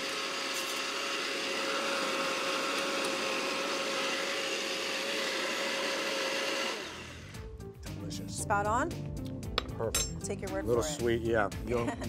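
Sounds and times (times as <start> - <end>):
blender motor whirring: 0.0 - 7.5.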